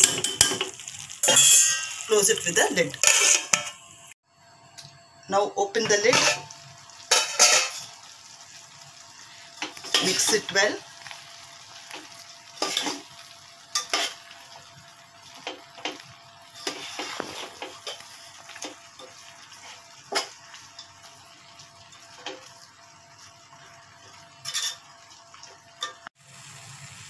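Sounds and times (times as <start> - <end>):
metal spoon scraping a pot: 3.0 - 3.8.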